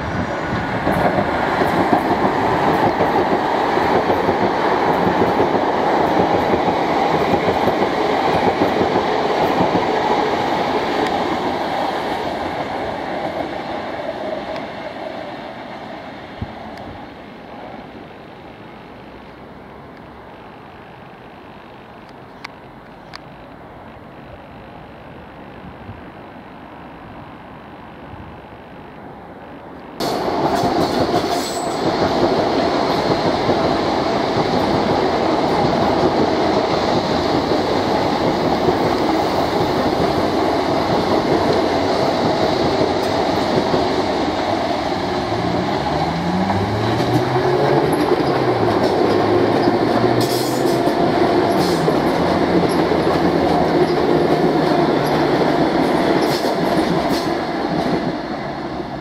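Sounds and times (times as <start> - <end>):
train wheels on rails: 0.0 - 24.1, 28.5 - 59.0
wheels clicking over rail joints: 45.2 - 58.2.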